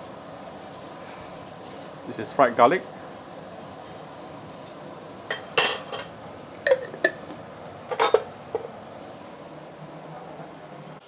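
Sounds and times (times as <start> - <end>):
metal spoon clinking on a dish: 5.3 - 6.1.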